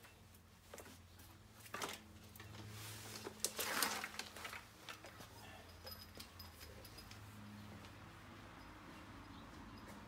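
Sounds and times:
rubber hose rubbing and scraping: 0:00.0 - 0:05.4
hose scuffs and rustles: 0:00.6 - 0:05.5.

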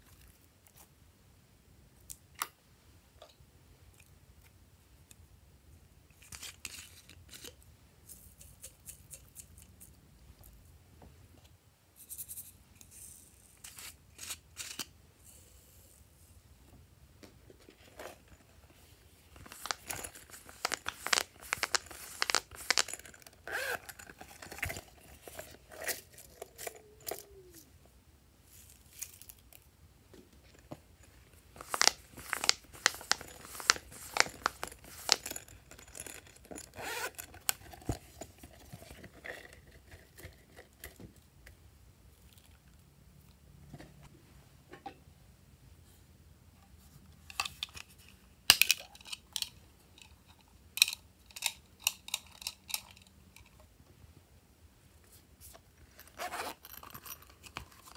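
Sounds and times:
plastic bags crinkling: 0:19.4 - 0:27.2, 0:31.5 - 0:37.9.

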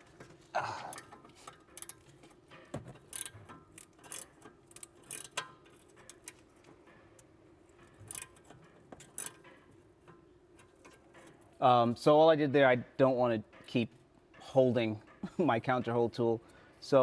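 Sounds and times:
wrench metallic clicks: 0:00.9 - 0:02.4, 0:03.0 - 0:11.5.

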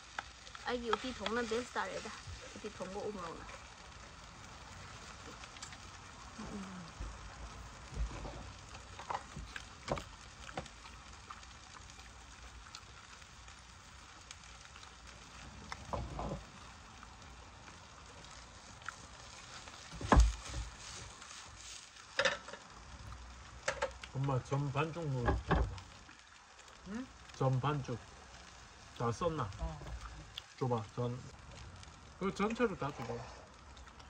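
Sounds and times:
faint hiss: 0:00.0 - 0:34.0.

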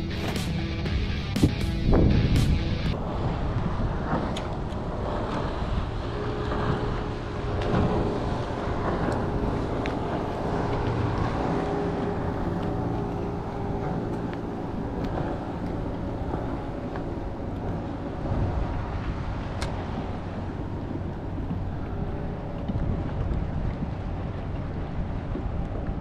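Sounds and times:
motorboat engine humming: 0:00.0 - 0:26.0
water noise: 0:00.0 - 0:26.0
wind: 0:00.0 - 0:26.0.

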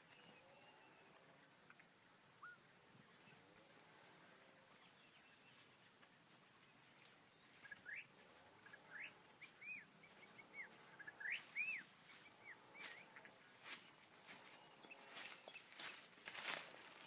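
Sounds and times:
faint clicks: 0:03.5 - 0:04.9
bird whistling: 0:07.6 - 0:08.1, 0:10.6 - 0:11.9.

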